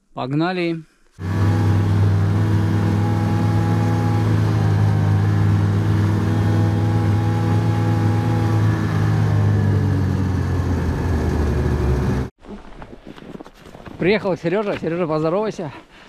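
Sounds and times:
car engine driving off: 1.2s - 12.3s.

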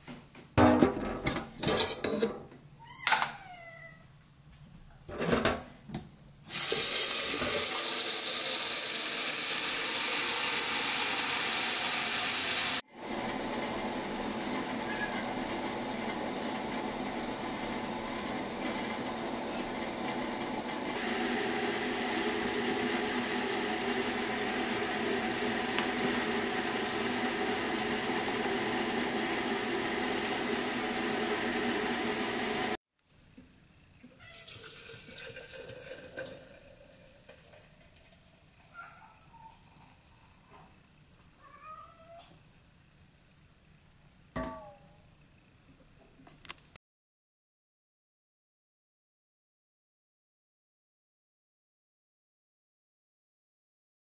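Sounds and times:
tap water filling kettle: 6.5s - 13.6s, 15.5s - 32.8s, 34.0s - 38.7s.

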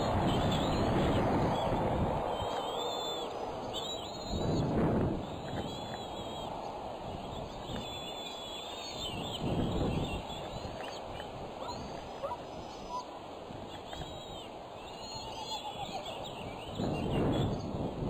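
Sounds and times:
low rushing noise: 0.0s - 13.6s
eaglets chittering: 0.0s - 17.8s.

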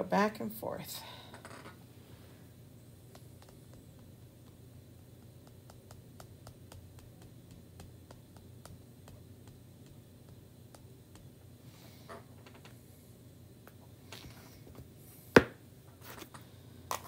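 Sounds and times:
steady low hum: 0.0s - 17.0s
paste applicator ticking and tapping: 3.0s - 11.4s.

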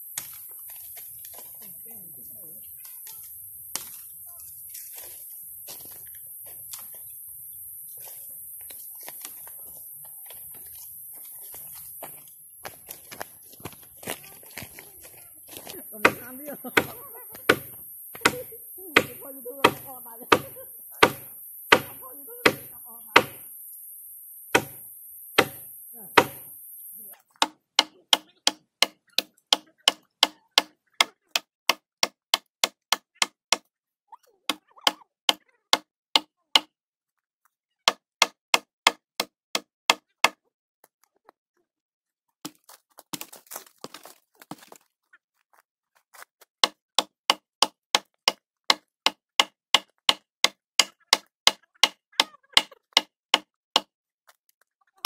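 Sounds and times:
sharp regular knocks: 16.0s - 23.5s, 24.5s - 24.8s, 25.4s - 26.5s.

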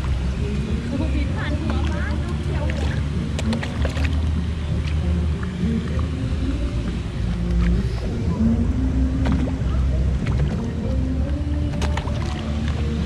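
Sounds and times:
boat engine droning: 0.0s - 13.0s.

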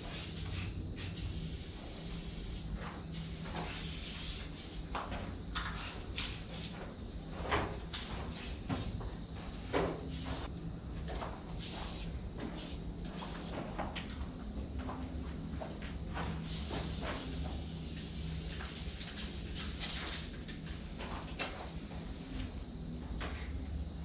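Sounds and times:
spray paint can hissing: 0.0s - 6.8s, 8.3s - 9.0s, 10.0s - 10.5s, 11.6s - 13.6s, 16.4s - 22.8s.

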